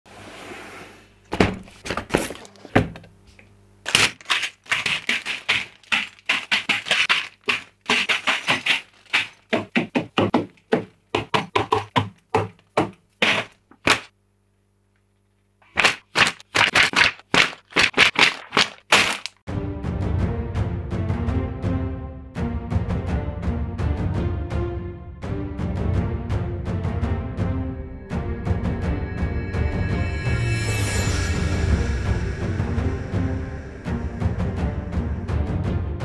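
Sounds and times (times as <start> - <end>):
plastic bags crinkling: 3.9 - 9.2, 16.6 - 19.4
paper booklet pages flipping: 3.9 - 9.4, 15.6 - 19.4.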